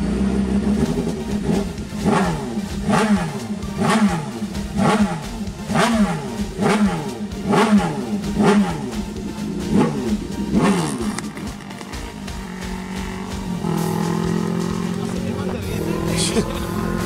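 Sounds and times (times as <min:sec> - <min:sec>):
motorcycle engine revving: 0:00.0 - 0:17.0.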